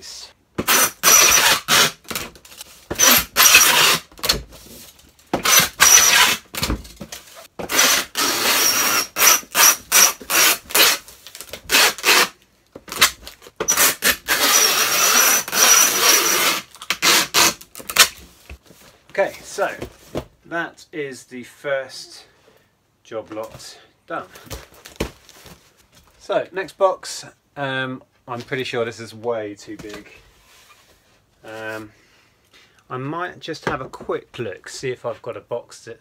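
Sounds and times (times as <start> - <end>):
packing tape pulled from dispenser: 0.7 - 4.1, 7.7 - 18.2.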